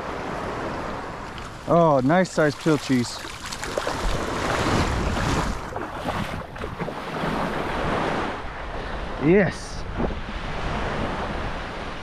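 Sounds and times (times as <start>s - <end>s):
surf washing over sand: 0.0s - 12.0s
wind buffeting microphone: 3.6s - 9.2s, 9.8s - 12.0s.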